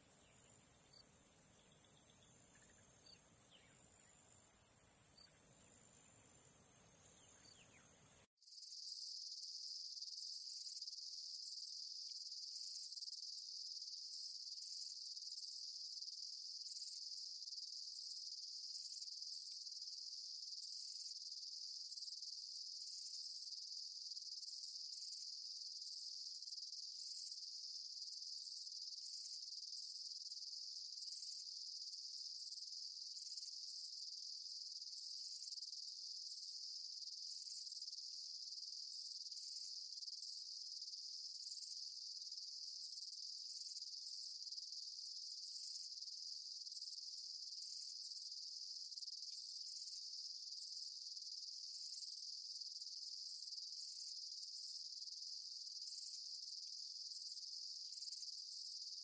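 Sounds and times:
faint outdoor hiss: 0:00.0 - 0:59.0
high-pitched insect chorus: 0:00.0 - 0:59.0.

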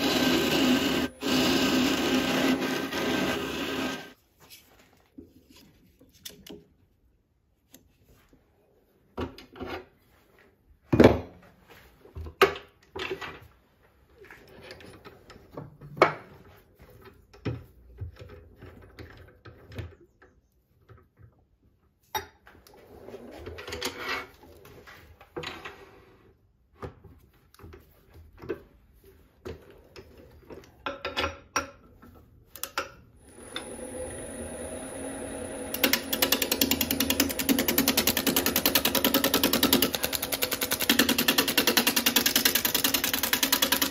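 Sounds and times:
lathe motor whine: 0:00.0 - 0:04.2, 0:33.2 - 0:38.7.

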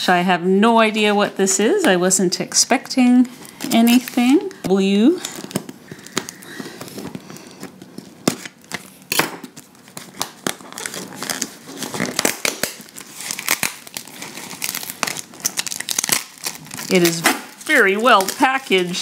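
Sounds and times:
tape ripping off cardboard: 0:08.2 - 0:18.4.

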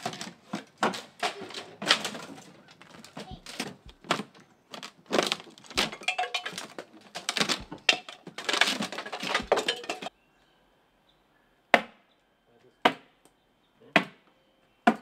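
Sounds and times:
wood cracking and scraping: 0:00.0 - 0:10.1.

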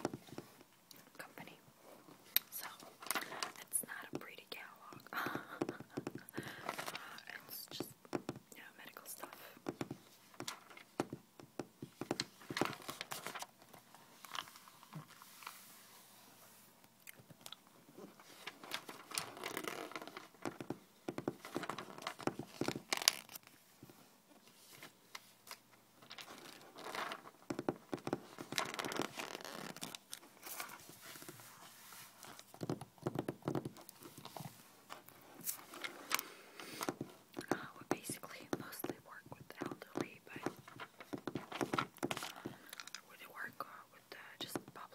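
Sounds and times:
fingertips tapping on magazine pages: 0:02.6 - 0:15.6, 0:18.2 - 0:24.0, 0:24.7 - 0:44.8
paper rustling: 0:12.1 - 0:16.6, 0:18.1 - 0:20.6, 0:28.0 - 0:32.7.

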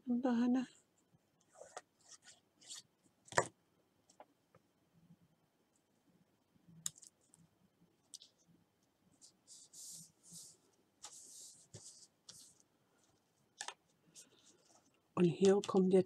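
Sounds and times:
paper rustling: 0:09.2 - 0:12.6.

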